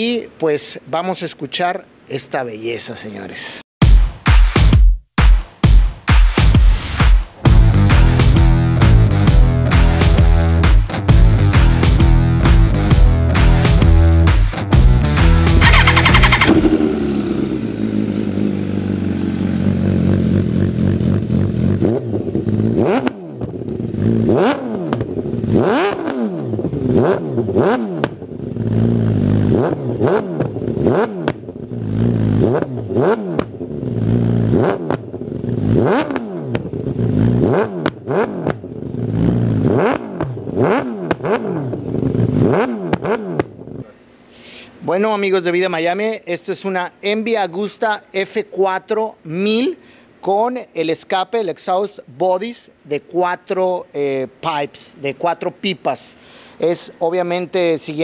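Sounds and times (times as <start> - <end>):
motorcycle engine revving: 7.4 - 43.9.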